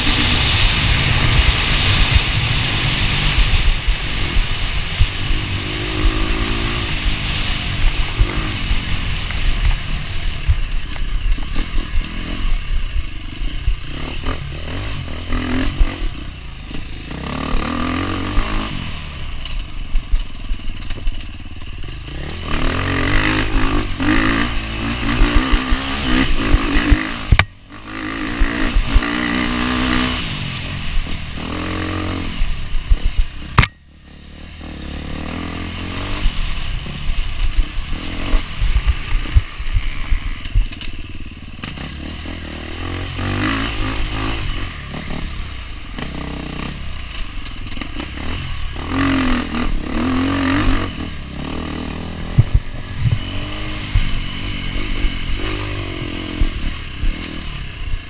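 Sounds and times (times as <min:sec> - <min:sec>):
motorcycle engine revving: 0:00.0 - 0:58.0
bike knocks and rattles: 0:51.5 - 0:57.4.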